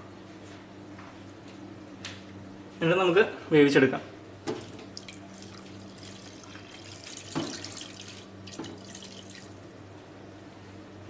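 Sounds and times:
water pouring into a pot: 0:04.6 - 0:09.6.

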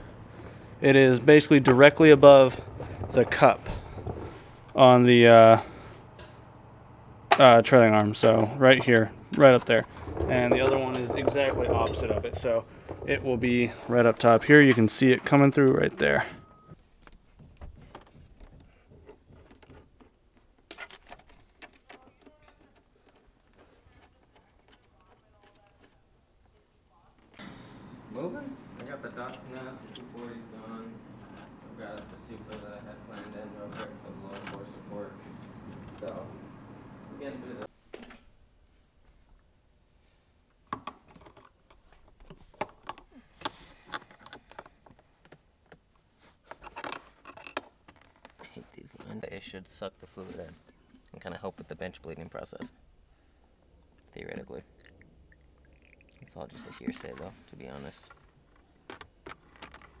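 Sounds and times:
clicks and rattles of handling: 0:08.0 - 0:14.9, 0:17.0 - 0:26.6, 0:40.8 - 0:49.2, 0:56.8 - 1:00.0.

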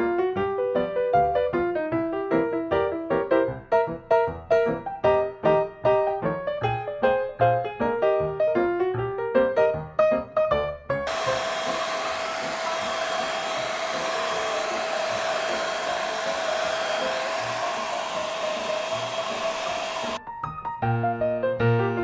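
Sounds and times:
piano music: 0:00.0 - 0:18.9
hair dryer blowing: 0:11.1 - 0:20.2.

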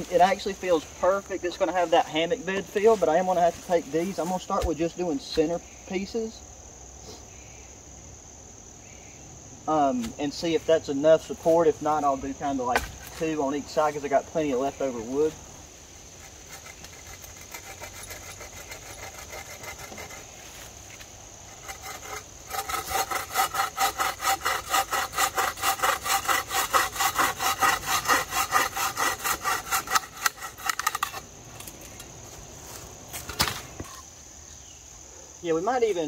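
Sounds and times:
hand saw cutting wood: 0:16.2 - 0:20.3, 0:21.5 - 0:31.2.

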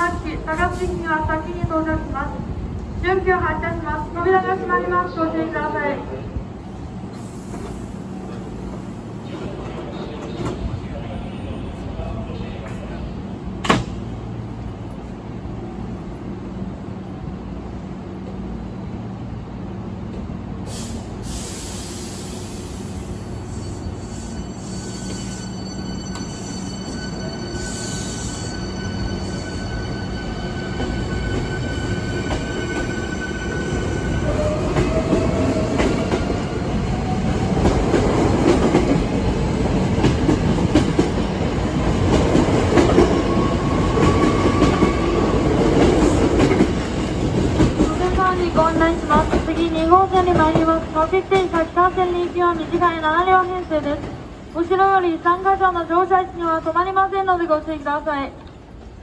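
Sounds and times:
short air hiss: 0:20.7 - 0:23.2
electric train pulling away: 0:20.7 - 0:39.5.

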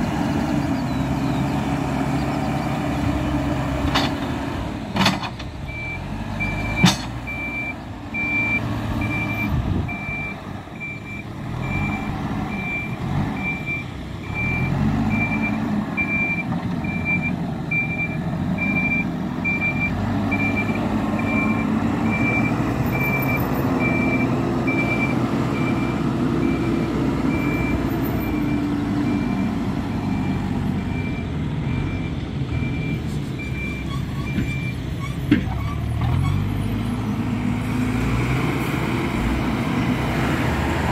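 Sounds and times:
backhoe diesel engine working: 0:00.0 - 0:40.9
reversing alarm beeping: 0:05.7 - 0:34.8.

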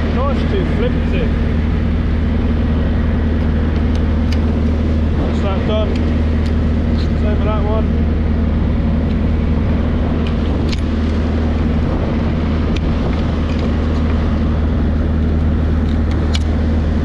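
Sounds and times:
boat engine droning: 0:00.0 - 0:17.0
light sharp clicks: 0:15.8 - 0:16.6.

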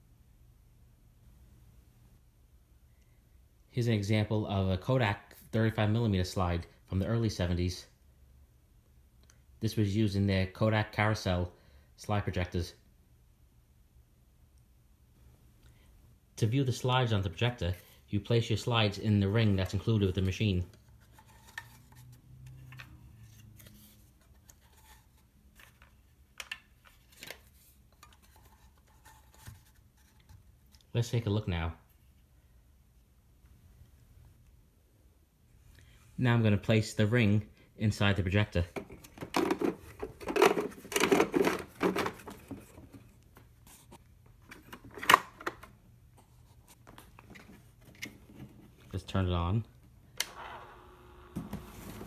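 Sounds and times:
plastic tray rattling and knocking: 0:38.8 - 0:42.8.

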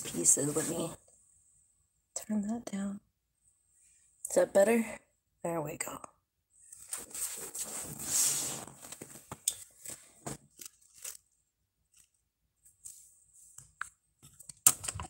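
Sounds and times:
rustling scrape: 0:06.7 - 0:11.2.

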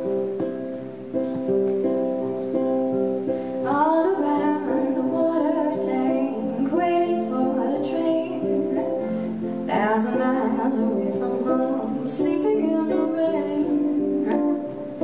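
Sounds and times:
ukulele picking: 0:00.0 - 0:15.0
woman singing: 0:03.6 - 0:14.7.

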